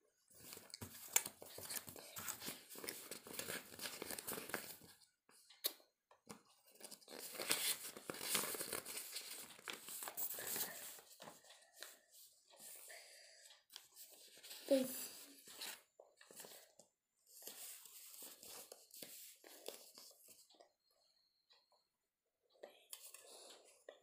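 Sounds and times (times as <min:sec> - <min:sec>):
paper rustling and crinkling: 0:00.3 - 0:05.0, 0:06.6 - 0:12.0, 0:17.3 - 0:20.2.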